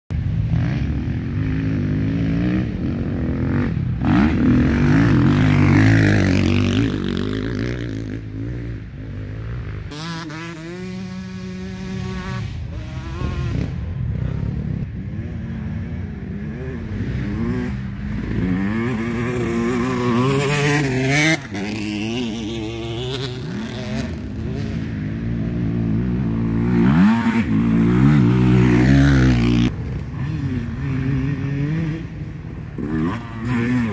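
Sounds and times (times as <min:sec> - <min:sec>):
dirt bike engines revving: 0:00.1 - 0:33.9.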